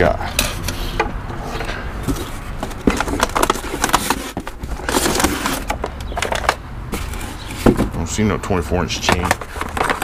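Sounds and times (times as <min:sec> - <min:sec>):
cardboard packaging knocks and rustles: 0:02.1 - 0:08.0, 0:09.0 - 0:10.0.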